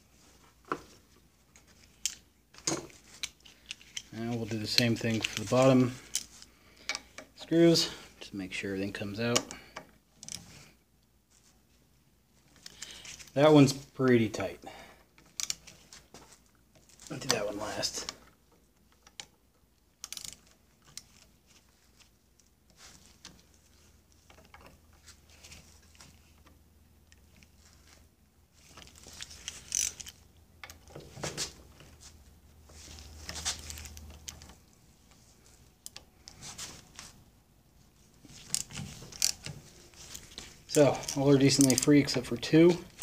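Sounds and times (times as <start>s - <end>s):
hand tool clicking on screws: 38.5s - 39.5s
sharp metal clicks: 40.7s - 42.3s.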